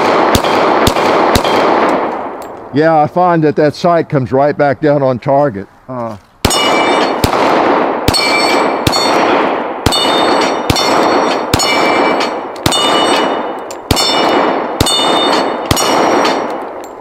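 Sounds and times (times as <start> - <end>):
pistol shots: 0.0 - 2.6, 6.4 - 17.0
steel plate clanging: 9.9 - 17.0.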